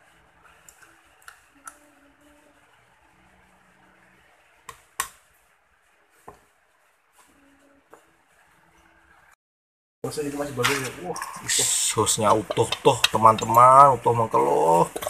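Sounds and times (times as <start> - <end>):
faint steady hiss: 0.0 - 9.4.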